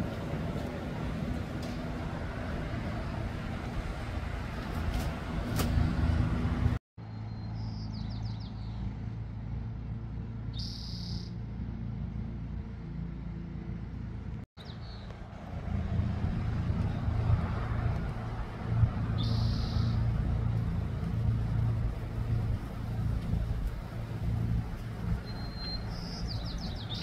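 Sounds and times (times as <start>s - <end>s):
low engine-like hum: 0.0s - 27.0s
bird chirps: 7.0s - 8.8s, 10.5s - 11.4s, 14.6s - 15.1s, 19.2s - 20.0s, 25.2s - 27.0s.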